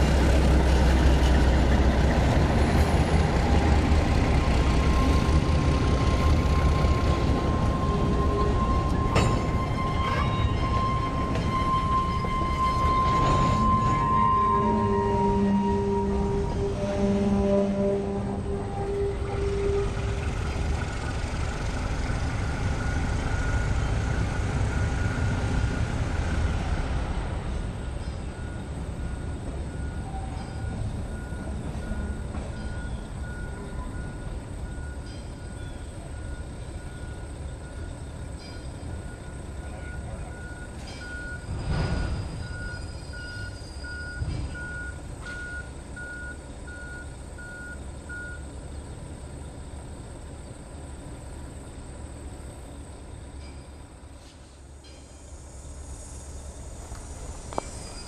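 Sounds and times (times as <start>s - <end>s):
locomotive diesel engine rumbling: 0.0s - 58.0s
reversing alarm beeping: 3.4s - 17.9s, 22.1s - 25.7s, 27.9s - 48.6s.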